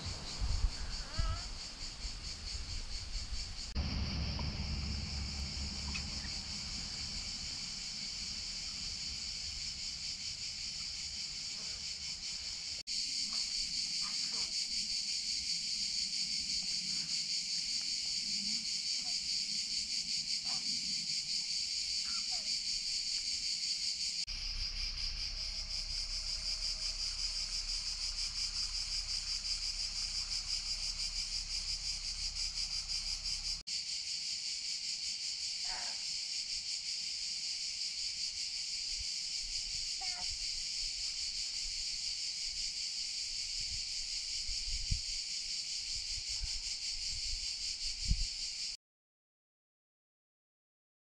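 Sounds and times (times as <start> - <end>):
low rumble: 0.0 - 11.4, 24.3 - 33.6
insects buzzing: 0.0 - 48.8.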